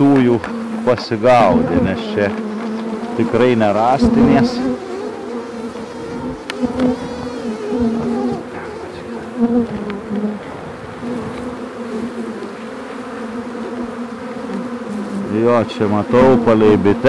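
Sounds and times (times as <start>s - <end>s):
honeybees buzzing: 0.0s - 17.0s
faint clicks: 9.6s - 10.3s.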